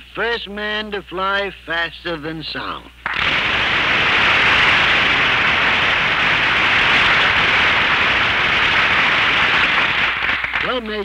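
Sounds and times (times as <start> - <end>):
audience applause: 3.0 - 10.8.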